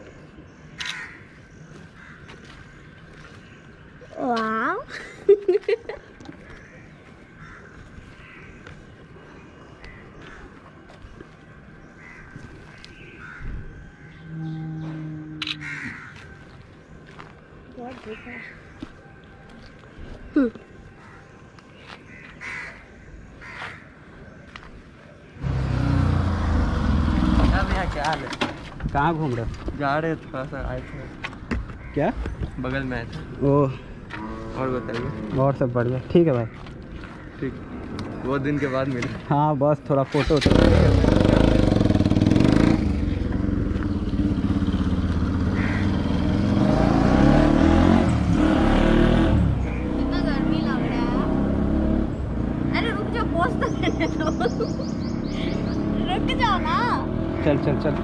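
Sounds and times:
motorcycle engine running: 40.4s - 46.3s.

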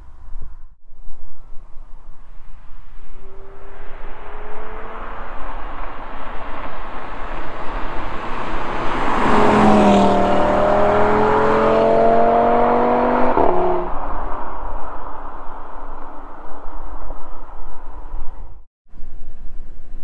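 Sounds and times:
sports car accelerating: 2.9s - 14.3s.

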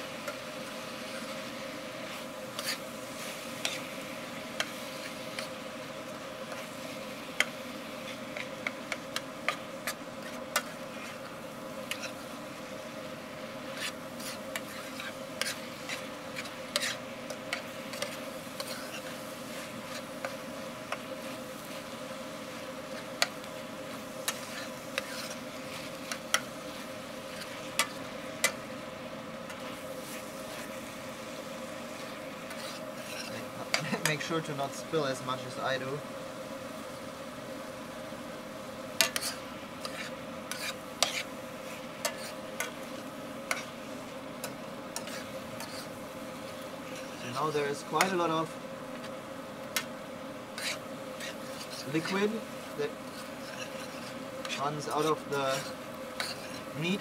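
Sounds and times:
meat sizzling: 0.0s - 57.0s
spatula scraping metal frying pan: 2.2s - 2.9s, 3.5s - 3.9s, 8.0s - 12.3s, 13.7s - 20.4s, 24.2s - 26.5s, 32.0s - 34.3s, 39.0s - 41.3s, 42.0s - 42.8s, 43.5s - 43.8s, 44.4s - 48.4s, 50.5s - 57.0s.

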